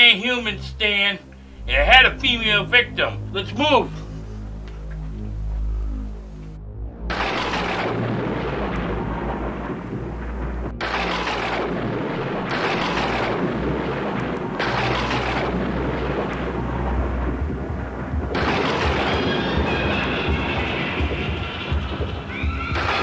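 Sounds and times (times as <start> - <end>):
thunder rumbling: 0.0 - 23.0
rain hiss: 7.3 - 17.4.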